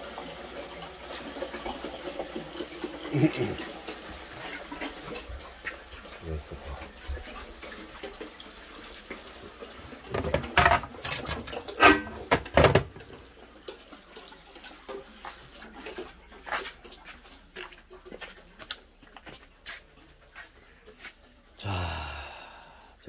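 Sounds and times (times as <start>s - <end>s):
water running in sink: 0.0s - 21.5s
loud knocks and clatter: 12.3s - 13.0s.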